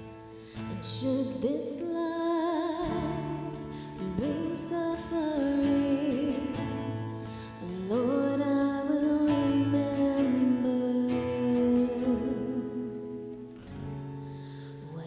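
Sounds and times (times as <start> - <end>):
person singing a slow hymn: 0.6 - 6.8, 7.6 - 13.4.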